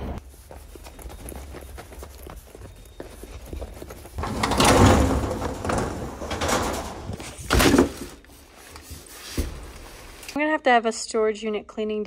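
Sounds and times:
sliding door rattling scrape: 4.2 - 7.9.

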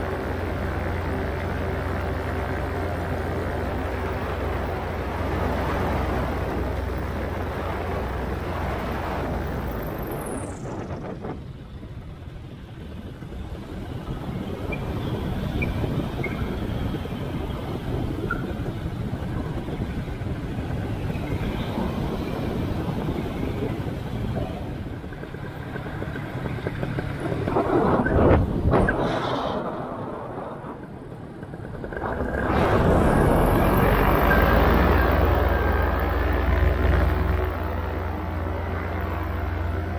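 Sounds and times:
paramotor engine drone: 0.0 - 39.9
wind rushing over microphone: 0.0 - 39.9.

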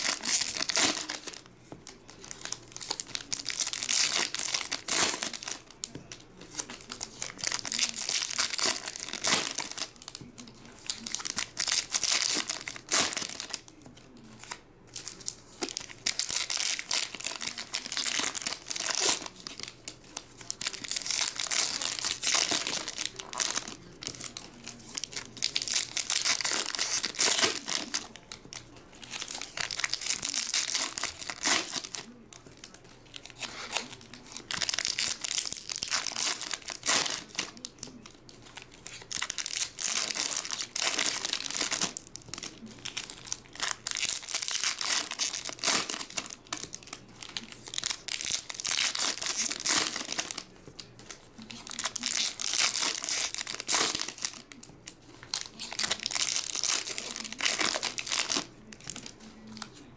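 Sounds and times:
foil wrappers tearing and crinkling: 0.0 - 59.8.

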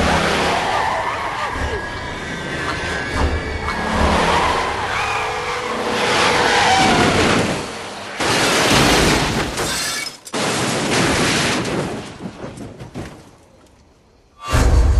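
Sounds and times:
vehicle crashing and rolling: 0.0 - 13.9
glass shattering: 8.2 - 12.0
debris settling: 8.2 - 14.0.

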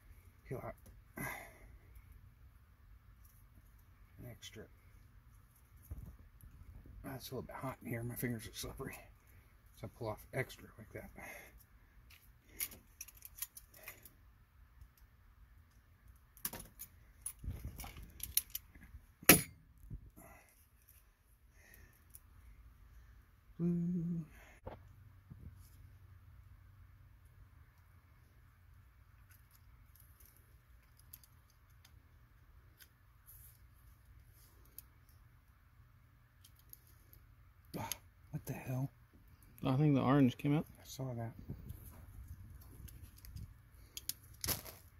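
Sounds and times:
low steady hum: 0.0 - 44.9
cable wires being handled: 3.0 - 7.0, 11.5 - 19.2, 19.8 - 22.4, 29.1 - 35.6, 36.2 - 38.5, 40.4 - 44.9.

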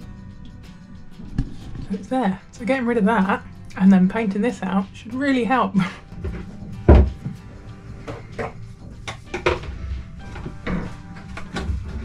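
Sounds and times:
tube bumping against fittings: 8.0 - 12.0.

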